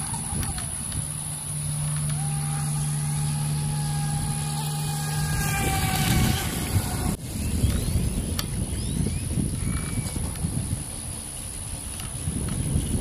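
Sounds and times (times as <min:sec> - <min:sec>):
electric motor high whine: 0:00.0 - 0:08.1
low steady hum: 0:00.0 - 0:09.9.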